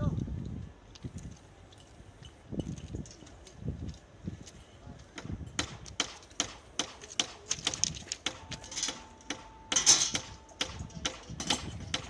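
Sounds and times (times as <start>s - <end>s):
metal tools clinking on rail: 1.2s - 6.4s, 7.0s - 12.0s.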